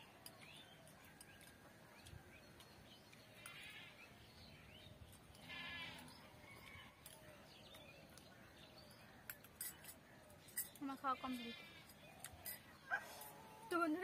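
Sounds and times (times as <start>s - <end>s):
faint livestock bleating: 3.4s - 4.0s, 5.4s - 6.2s, 11.0s - 11.9s.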